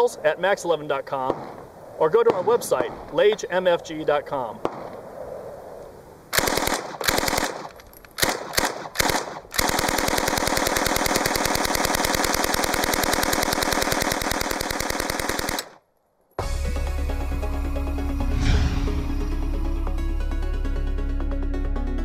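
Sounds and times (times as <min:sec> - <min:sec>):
submachine gun automatic fire: 0:06.3 - 0:15.8.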